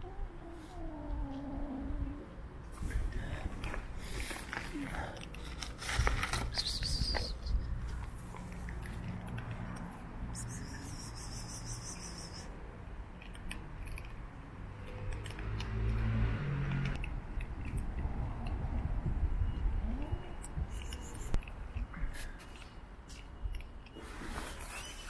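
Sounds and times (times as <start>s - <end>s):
kittens crunching dry kibble: 3.4s - 9.9s.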